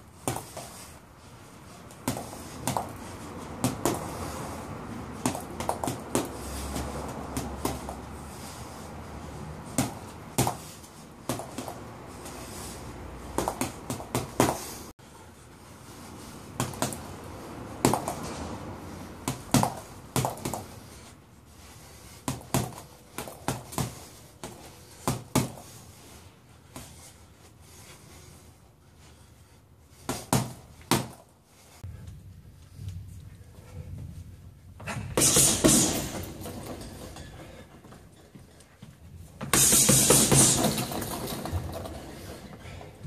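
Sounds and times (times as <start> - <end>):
gloves punching reflex ball: 1.9 - 3.0, 3.6 - 4.1, 5.2 - 8.0, 9.7 - 11.8, 13.3 - 14.7, 16.6 - 17.1, 17.8 - 18.2, 19.2 - 20.8.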